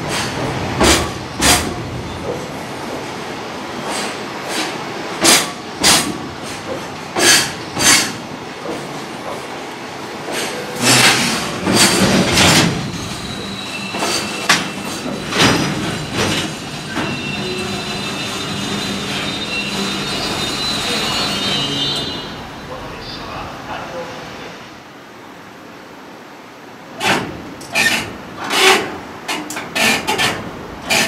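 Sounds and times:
train wheels rumbling on rail: 0:00.0 - 0:24.0, 0:26.8 - 0:31.0
high wheel squeal: 0:12.9 - 0:22.8.

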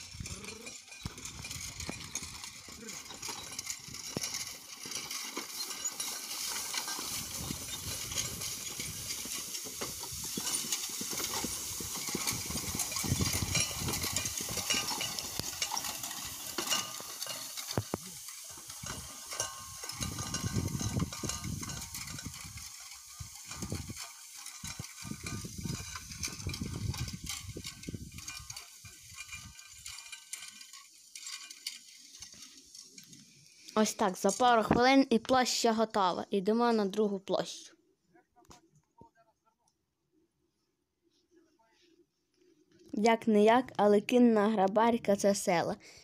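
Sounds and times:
horse hooves thudding: 0:00.0 - 0:30.4
rake tines sweeping hay: 0:00.0 - 0:34.4.

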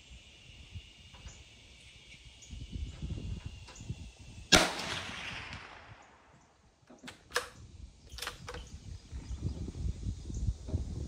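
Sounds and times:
rifle shot: 0:04.5 - 0:06.3
sharp clicks: 0:06.9 - 0:08.8.

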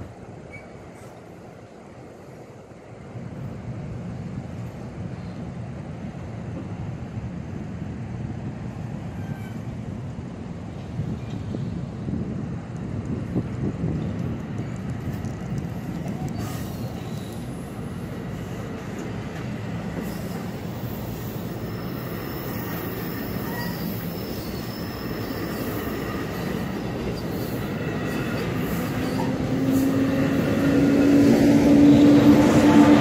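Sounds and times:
electric locomotive hum: 0:00.0 - 0:33.0
faint wheel squeal: 0:00.5 - 0:01.2, 0:09.1 - 0:09.7, 0:21.6 - 0:25.8
wheel-on-rail rumble: 0:08.5 - 0:33.0.

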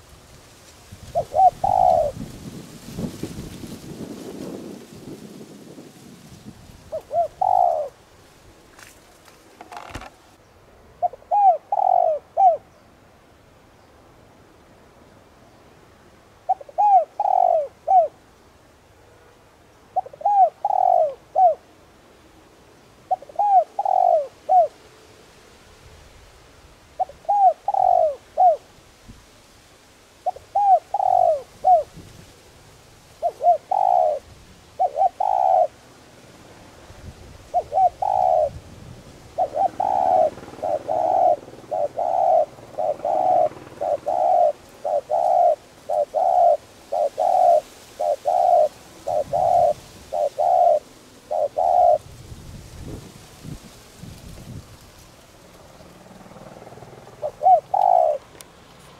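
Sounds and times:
dove cooing: 0:01.0 - 0:02.4, 0:06.8 - 0:08.0, 0:09.6 - 0:10.2, 0:11.0 - 0:12.7, 0:16.4 - 0:18.2, 0:19.9 - 0:21.7, 0:23.0 - 0:24.8, 0:27.0 - 0:28.7, 0:30.2 - 0:32.1, 0:33.1 - 0:35.8, 0:37.4 - 0:52.2, 0:55.6 - 0:58.9.

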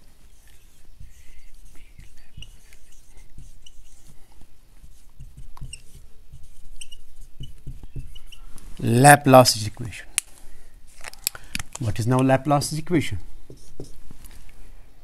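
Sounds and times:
marker tip squeaks: 0:00.3 - 0:04.1, 0:04.9 - 0:08.5
marker scratching on whiteboard: 0:00.3 - 0:09.0, 0:13.5 - 0:14.0.

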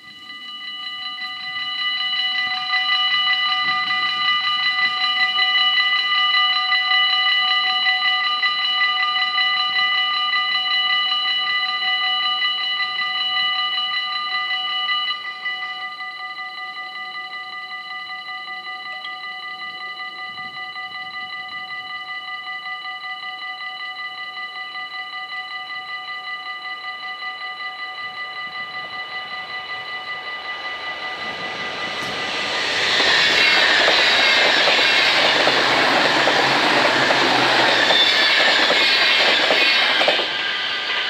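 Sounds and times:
level crossing bells ringing: 0:26.7 - 0:41.0.

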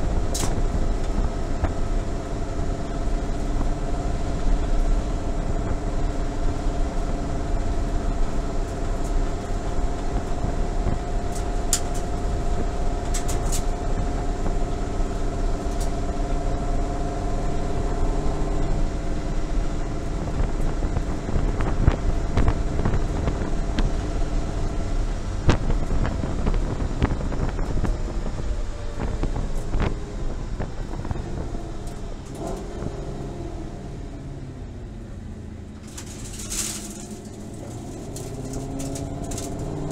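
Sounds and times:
car engine cruising: 0:00.0 - 0:39.9
road rumble: 0:00.0 - 0:39.9
sharp rattles or clicks: 0:35.8 - 0:39.9.

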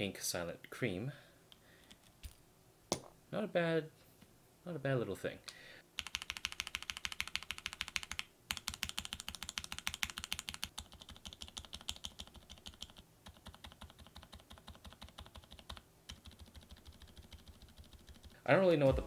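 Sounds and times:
mechanical keyboard typing: 0:06.0 - 0:18.4.

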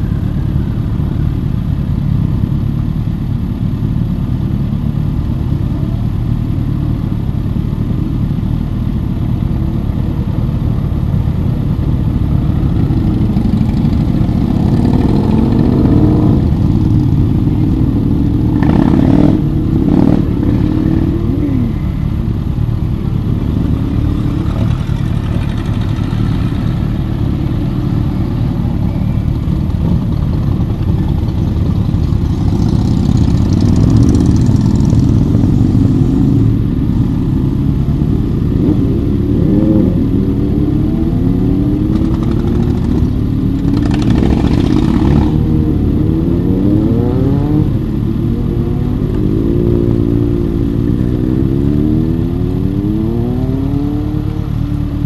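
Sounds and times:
motorcycles revving past: 0:11.8 - 0:55.0.

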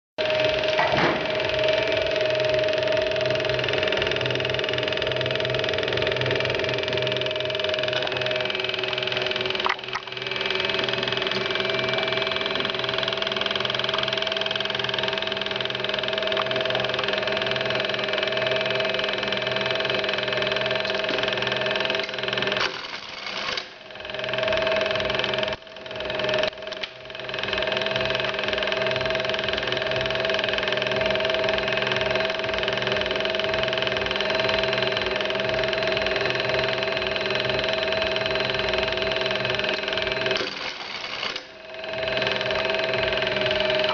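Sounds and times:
sewing machine motor humming: 0:00.2 - 0:43.9.

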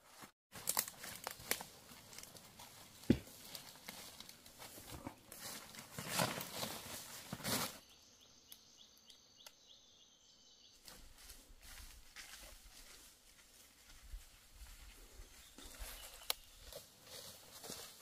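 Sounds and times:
faint forest background: 0:00.0 - 0:18.0
dry leaves crunching underfoot: 0:00.1 - 0:07.9, 0:15.6 - 0:18.0.

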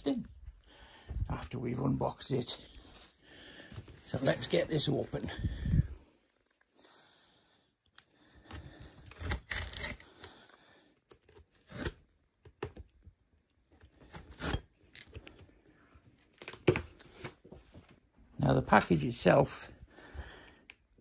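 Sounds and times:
knife slitting tape on cardboard: 0:09.0 - 0:10.1, 0:14.0 - 0:15.2.

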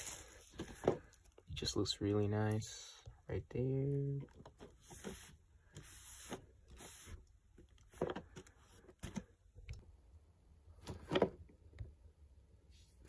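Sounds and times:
crinkly rustle: 0:00.0 - 0:01.4.

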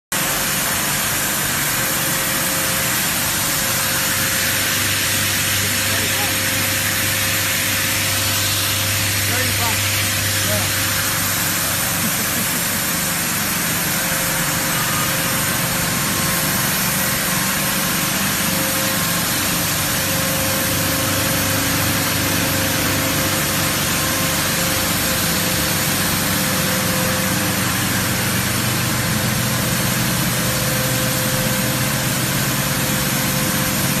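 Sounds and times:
constant machine hiss: 0:00.1 - 0:34.0
steady machine hum: 0:00.1 - 0:34.0.

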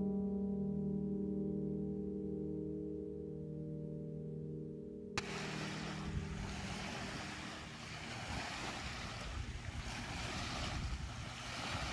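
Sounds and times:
small waves washing onto beach: 0:05.2 - 0:11.9
wind buffeting microphone: 0:05.2 - 0:11.9.

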